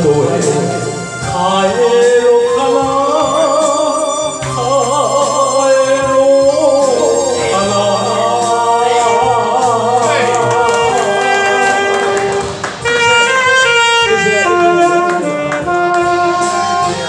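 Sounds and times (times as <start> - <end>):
man singing into microphone: 0.0 - 12.4
saxophone: 0.0 - 17.0.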